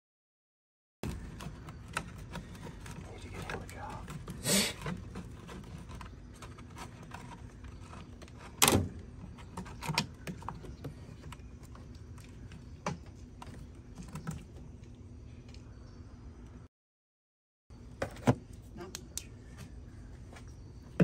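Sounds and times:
plastic tank being handled: 1.0 - 14.8, 17.9 - 18.6.

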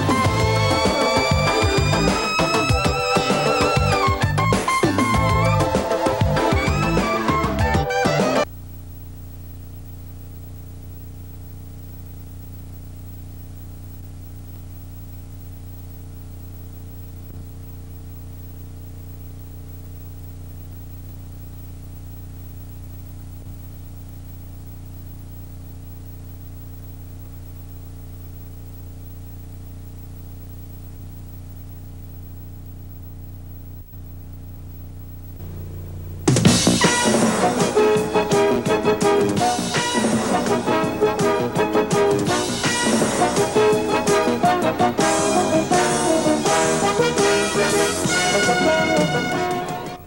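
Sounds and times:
tape hiss: 0.0 - 50.0
low electrical hum: 8.4 - 36.4.

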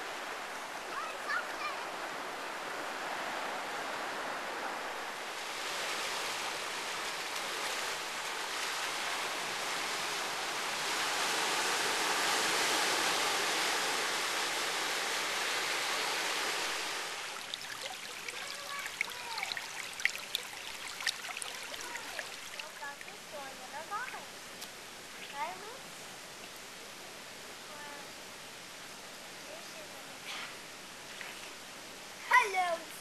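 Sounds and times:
surf washing over rocks: 0.0 - 24.5, 31.5 - 33.0.

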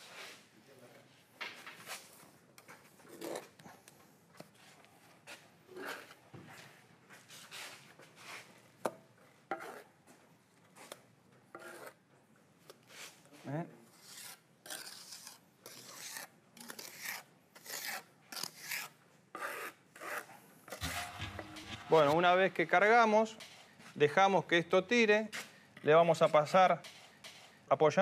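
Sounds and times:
trowel scraping and slapping mortar: 11.5 - 12.0, 14.0 - 22.2.

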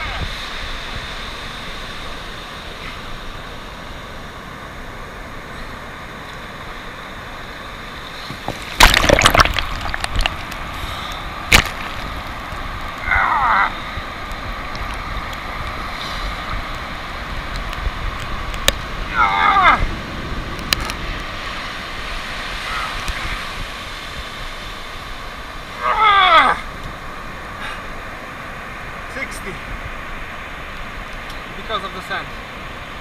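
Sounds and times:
surf hissing on sandy beach: 0.0 - 33.0
wave wash sloshing: 0.0 - 33.0
short falling cries: 13.0 - 13.8, 19.1 - 19.9, 25.8 - 26.7.

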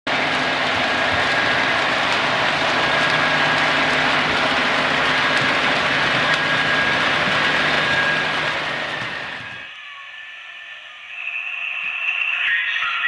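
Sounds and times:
hiss of running model train: 0.1 - 9.6
model locomotive engine drone: 0.1 - 9.8.

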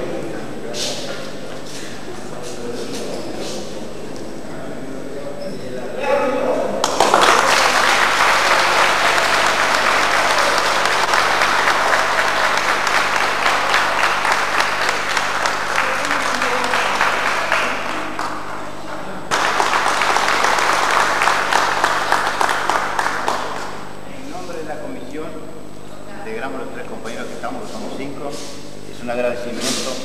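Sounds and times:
audience applauding: 6.8 - 24.0.

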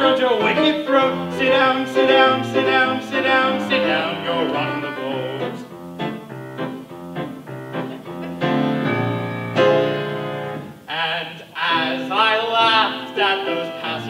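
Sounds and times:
piano chords: 0.0 - 14.0.

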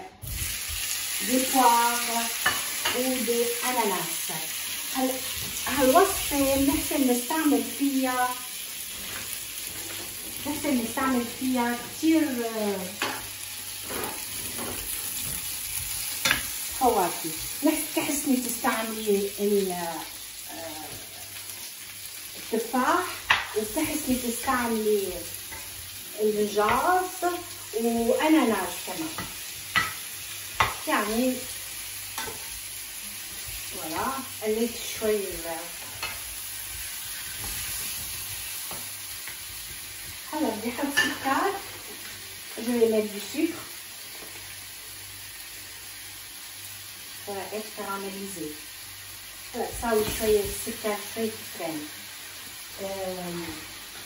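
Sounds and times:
fruit sizzling in a frying pan: 0.0 - 54.0
spatula tapping pan: 29.1 - 30.0, 30.6 - 30.8.

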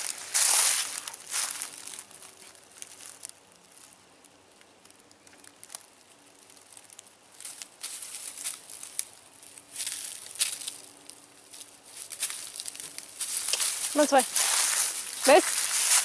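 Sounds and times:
footsteps crunching through dry leaves: 0.0 - 4.0, 7.3 - 16.0
leaves rustling and cracking: 0.0 - 16.0.

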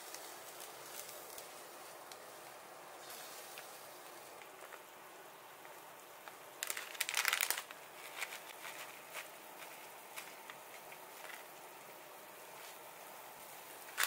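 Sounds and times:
soft rustles and ticks: 0.0 - 4.9, 5.6 - 11.5
low steady hiss: 0.0 - 14.0
plastic bag crinkling: 6.2 - 11.6, 13.6 - 14.0.

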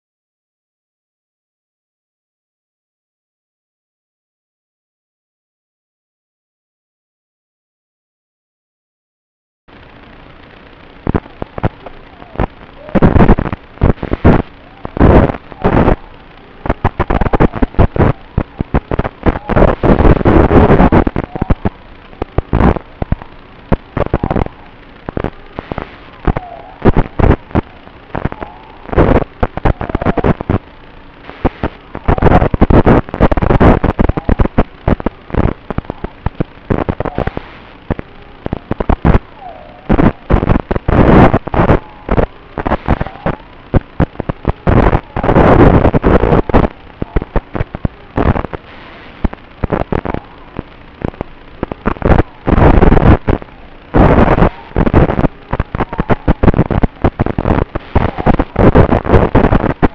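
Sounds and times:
distorted crackling bursts: 9.7 - 59.9
faint motor whine: 9.7 - 59.9.

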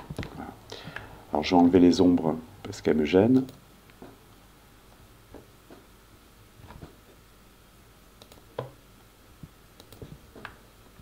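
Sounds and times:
faint computer mouse clicks: 8.2 - 8.7, 9.8 - 10.6.

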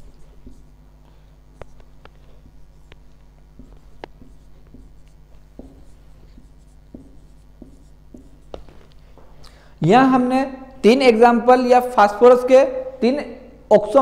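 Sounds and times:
marker writing on a whiteboard: 0.0 - 9.4
low electrical hum: 0.0 - 14.0.

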